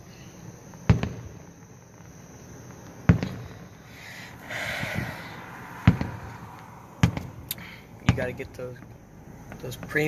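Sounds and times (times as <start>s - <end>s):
distant firework boom: 0.8s - 1.4s, 3.0s - 3.7s, 4.5s - 8.9s
hissing noise: 0.8s - 8.3s.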